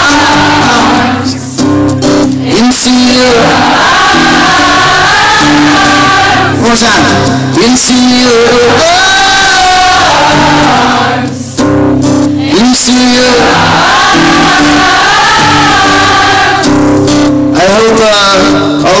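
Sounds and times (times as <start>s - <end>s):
man singing: 0.0s - 1.6s, 2.2s - 11.4s, 12.4s - 14.8s, 17.5s - 19.0s
rock guitar and drums: 1.3s - 2.5s.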